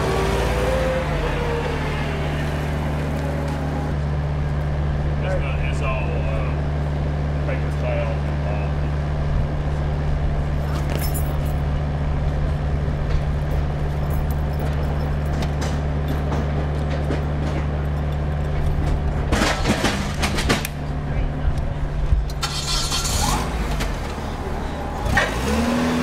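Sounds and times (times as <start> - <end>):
forklift engine droning: 0.0 - 26.0
clattering and rattling: 13.0 - 20.8.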